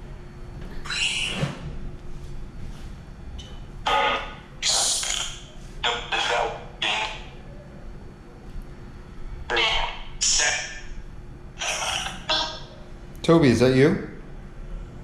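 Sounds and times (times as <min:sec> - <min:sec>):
garbled voice-like fragments: 0:03.9 - 0:07.3, 0:09.5 - 0:10.9, 0:11.6 - 0:12.7
static bursts from phone speaker: 0:09.5 - 0:10.8.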